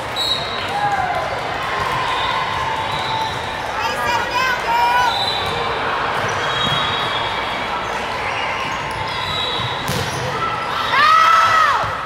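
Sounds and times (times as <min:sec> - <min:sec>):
high squeal: 0:06.3 - 0:10.9
volleyball strike: 0:09.6 - 0:10.4.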